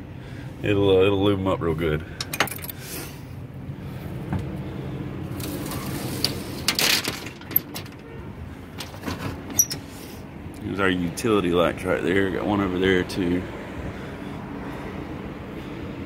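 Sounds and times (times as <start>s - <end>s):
low engine hum: 0.0s - 6.8s, 7.7s - 16.0s
metal toolbox knocks and rattles: 6.7s - 8.1s.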